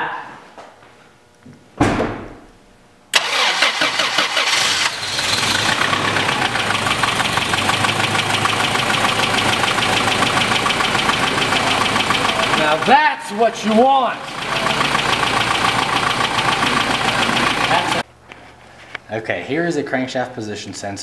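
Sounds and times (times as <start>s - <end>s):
car engine idling: 3.2s - 18.0s.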